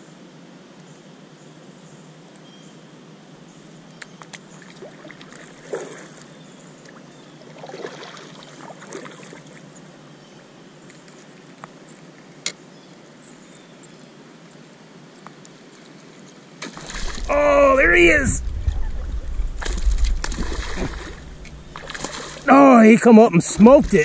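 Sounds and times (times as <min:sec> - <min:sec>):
water sloshing around kayak hull: 0:07.4 - 0:09.6, 0:16.6 - 0:22.8.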